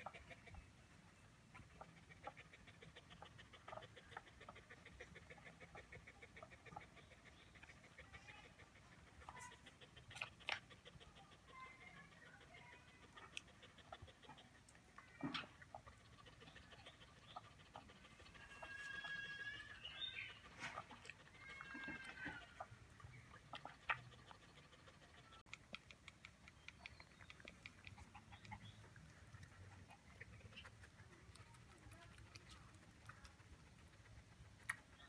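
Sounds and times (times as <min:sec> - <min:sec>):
puppy high-pitched calls: 0:01.5 - 0:25.6
puppies suckling wet smacking: 0:11.6 - 0:35.0.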